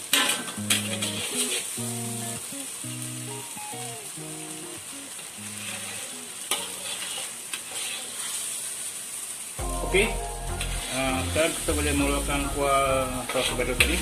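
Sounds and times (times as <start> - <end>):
metal spatula scraping: 0.0 - 1.8, 5.5 - 8.9, 10.0 - 11.6, 13.2 - 14.0
sauce sizzling in a wok: 0.0 - 14.0
quiet background music: 9.6 - 14.0.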